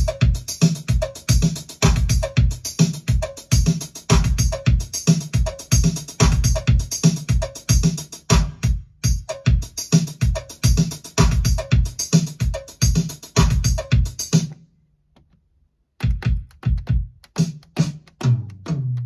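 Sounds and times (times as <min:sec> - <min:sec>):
fast hi-hat ticks: 0:00.0 - 0:08.4
drum machine pattern: 0:00.0 - 0:14.6, 0:16.0 - 0:19.0.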